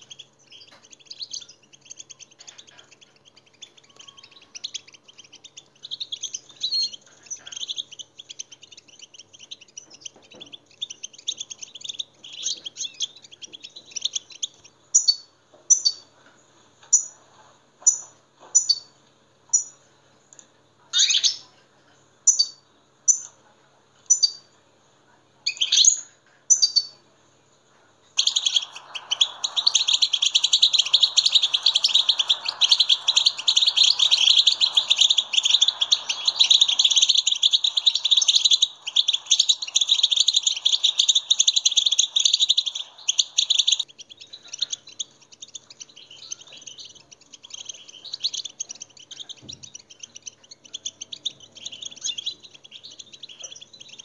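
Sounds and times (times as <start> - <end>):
goldfinch twittering song: 28.2 - 54.0.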